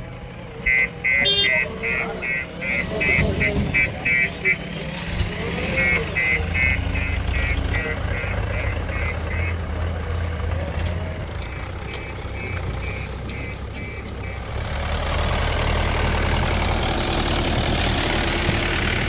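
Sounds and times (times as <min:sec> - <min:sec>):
tractor diesel engine running: 0:00.0 - 0:19.0
reversing alarm beeping: 0:00.6 - 0:09.7, 0:11.4 - 0:14.5.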